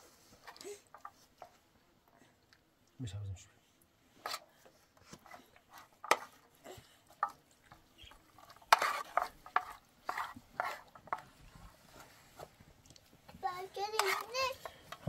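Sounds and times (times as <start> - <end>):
wooden spatula scraping metal pan: 4.2 - 6.5, 7.1 - 12.6, 13.4 - 15.0.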